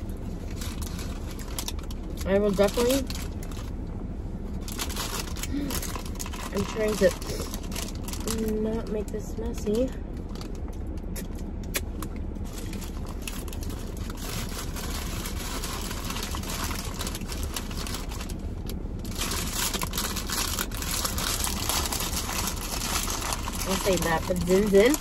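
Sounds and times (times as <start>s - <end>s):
steady low hum: 0.0s - 25.0s
paper wrapper crinkling: 0.4s - 3.7s, 4.6s - 8.6s, 12.4s - 25.0s.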